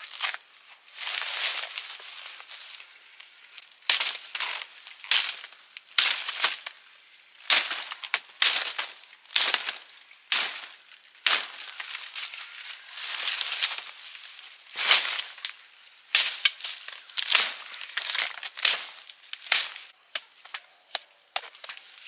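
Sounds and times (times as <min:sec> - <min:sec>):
sharp crunching strokes: 0:07.4 - 0:20.0.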